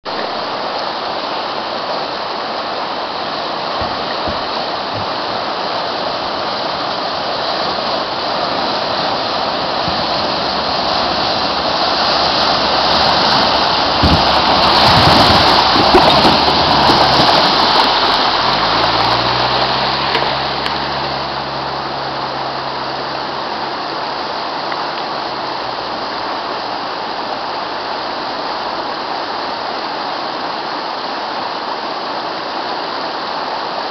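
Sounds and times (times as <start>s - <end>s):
river rushing over rocks: 0.1s - 33.9s
vehicle splashing through water: 0.1s - 33.9s
diesel engine revving: 4.3s - 28.0s.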